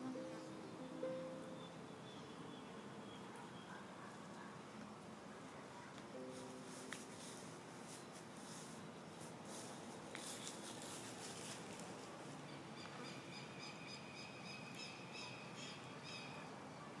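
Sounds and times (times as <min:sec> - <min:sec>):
campfire crackling: 0:06.7 - 0:12.4.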